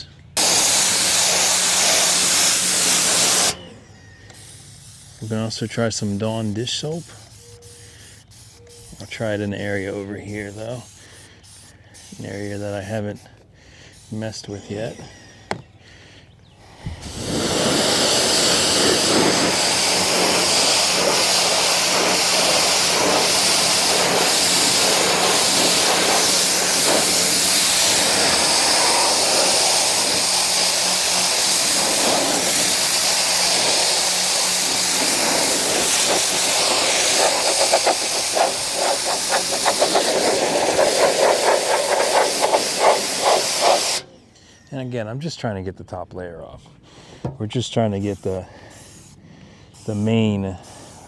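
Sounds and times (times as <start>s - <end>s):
pressure washer jet spraying: 0.4s - 3.6s, 4.4s - 12.9s, 17.0s - 44.1s.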